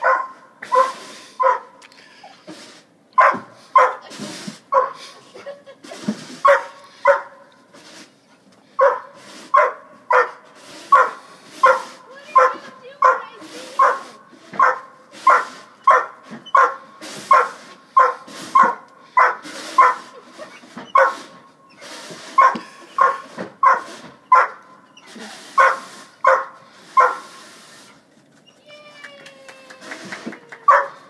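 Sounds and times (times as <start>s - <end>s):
dog barking: 0.0s - 1.8s, 3.2s - 4.0s, 4.7s - 5.0s, 6.4s - 7.4s, 8.8s - 20.1s, 20.9s - 21.3s, 22.4s - 24.6s, 25.6s - 27.3s, 30.7s - 31.0s
dog whining: 29.9s - 31.0s.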